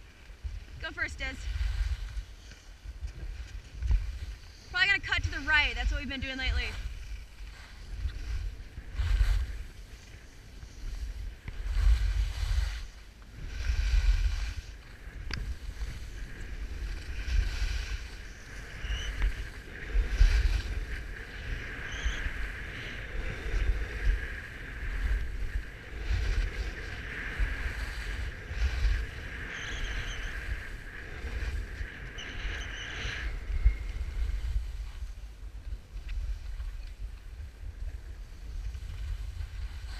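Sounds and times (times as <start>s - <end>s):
skis scraping on packed snow: 0.0s - 39.9s
wind buffeting microphone: 0.0s - 39.9s.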